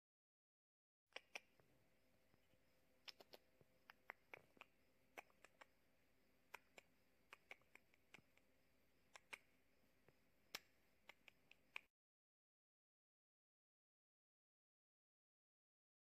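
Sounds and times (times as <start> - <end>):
faint small clicks and ticks: 2.3 - 5.8, 6.5 - 8.5, 9.1 - 11.9.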